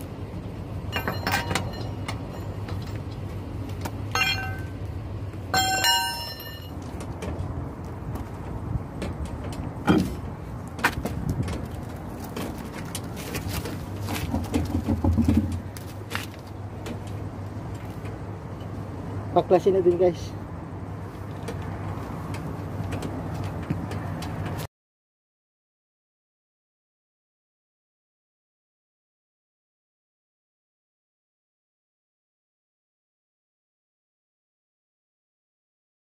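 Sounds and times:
steady low hum: 0:00.0 - 0:19.5
ringing metallic clinks: 0:00.9 - 0:03.0, 0:04.1 - 0:04.8, 0:05.6 - 0:06.8
metal clicks and knocks: 0:00.9 - 0:03.2, 0:05.6 - 0:18.8.

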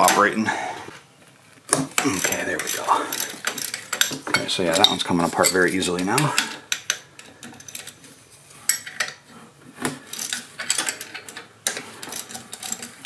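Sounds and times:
wrench clinking on bolts: 0:01.7 - 0:08.0, 0:08.7 - 0:09.2, 0:10.0 - 0:13.0.

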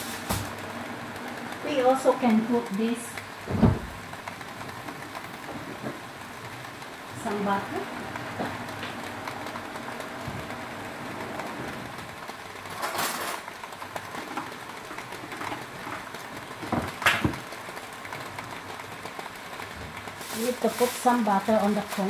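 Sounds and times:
gas burner hissing: 0:00.0 - 0:12.0, 0:20.0 - 0:22.0.

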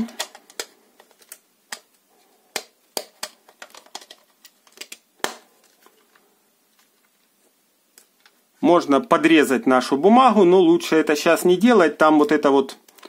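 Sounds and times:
plastic clicks and taps: 0:00.0 - 0:05.9.

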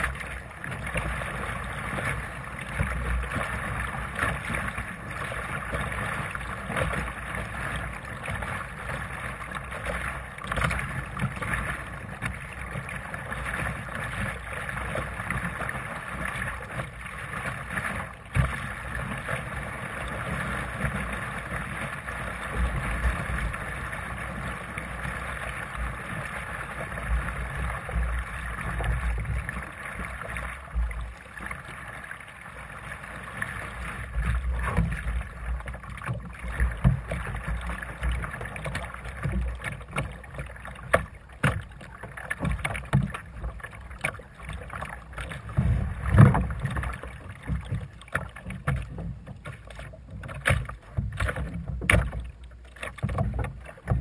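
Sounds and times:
water rushing along a hull: 0:00.0 - 0:54.0.

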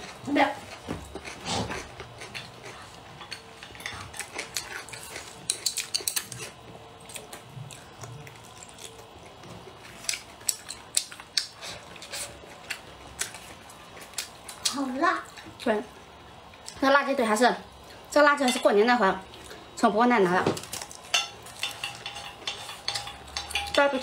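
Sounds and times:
chopsticks clicking against bowls: 0:03.2 - 0:06.5, 0:10.0 - 0:11.6, 0:21.0 - 0:24.0.

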